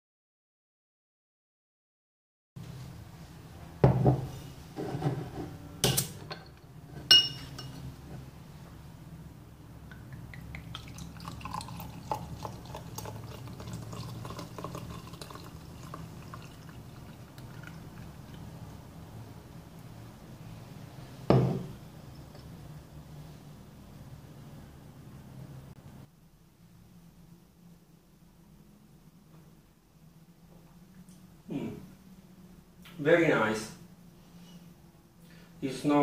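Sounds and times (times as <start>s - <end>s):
short glassy ring: 6.3s - 7.8s
beer pouring into a glass: 9.9s - 18.7s.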